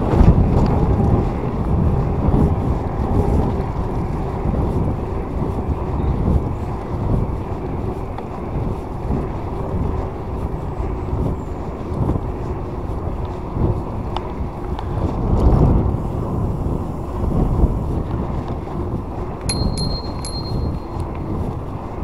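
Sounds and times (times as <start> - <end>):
wind buffeting microphone: 0.0 - 22.0
faint high tone: 19.5 - 21.0.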